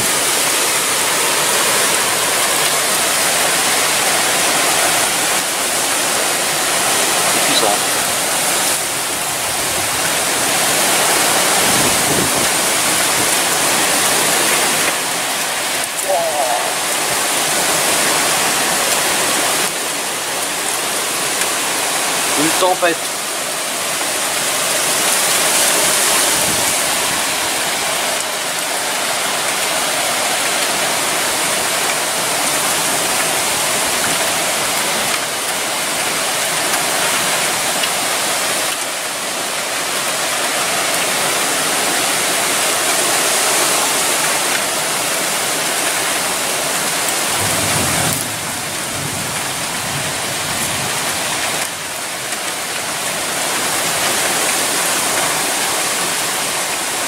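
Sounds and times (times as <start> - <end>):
heavy rain: 0.0 - 57.0
strong gusting wind: 3.6 - 15.2, 24.2 - 27.9.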